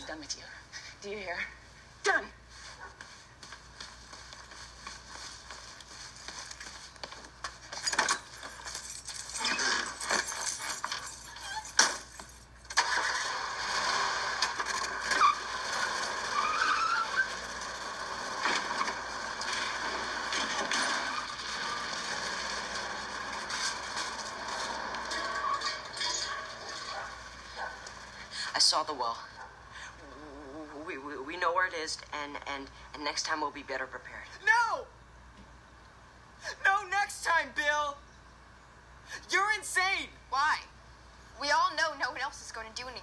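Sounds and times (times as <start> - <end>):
car engine running: 12.8 - 28.5.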